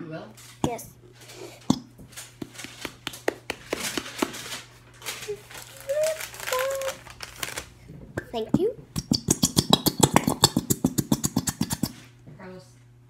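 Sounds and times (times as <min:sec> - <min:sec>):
glue bottle sputtering squirt: 0:00.6 - 0:01.9, 0:09.0 - 0:12.0
plastic bottle clicking and crackling: 0:01.6 - 0:12.0.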